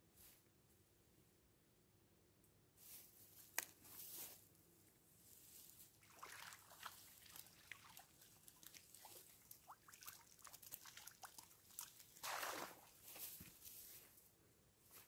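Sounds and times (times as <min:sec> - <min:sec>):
small splashes and ticks: 0:06.0 - 0:13.4
water dripping from mesh: 0:06.2 - 0:12.4
louder splash: 0:12.2 - 0:12.9.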